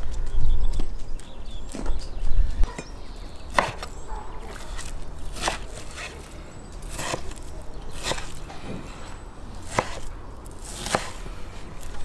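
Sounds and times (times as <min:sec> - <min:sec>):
knife cutting raw meat: 0:03.5 - 0:12.0.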